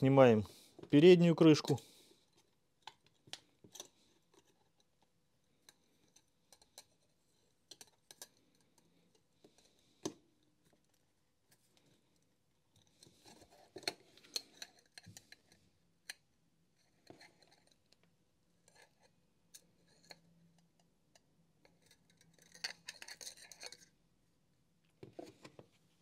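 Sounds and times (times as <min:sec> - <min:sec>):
plastic clicks and scraping: 0:02.8 - 0:11.0, 0:16.9 - 0:23.9.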